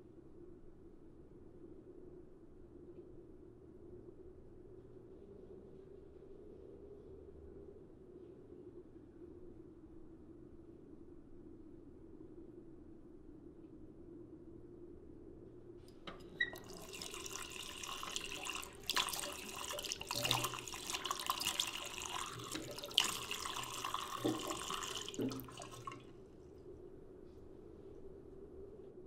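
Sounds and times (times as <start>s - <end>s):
tap water running into sink: 16.1s - 26.1s
knocks and splashes: 16.6s - 26.0s.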